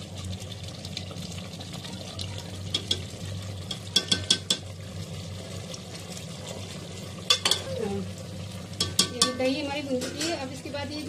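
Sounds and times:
spoon stirring in pot: 2.7s - 4.7s, 6.5s - 7.8s, 8.7s - 10.5s
spoon clicking against pot: 8.8s - 9.4s.

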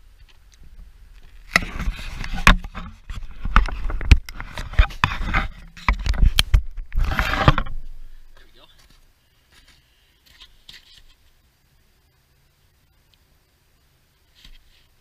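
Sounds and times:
crunching and scraping on snow: 1.2s - 11.3s.

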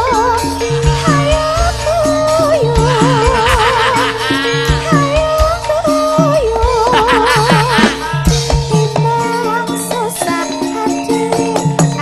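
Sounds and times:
steady bass line: 0.0s - 9.0s
woman singing into a microphone: 0.0s - 12.0s
drum strokes: 6.7s - 9.1s.

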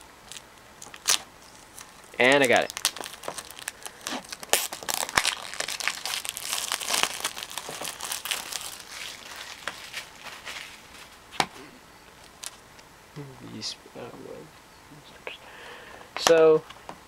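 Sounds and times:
plastic wrap crinkling: 0.2s - 11.3s.

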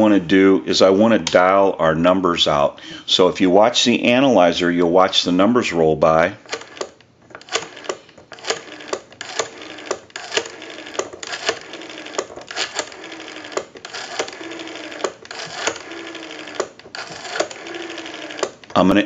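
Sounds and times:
rotary telephone dial clicking and whirring: 6.4s - 18.8s.

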